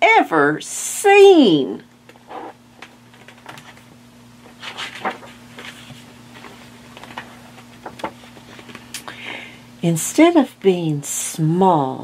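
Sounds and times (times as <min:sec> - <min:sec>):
faint steady hum: 0:00.0 - 0:12.0
book pages rustling: 0:02.1 - 0:08.9.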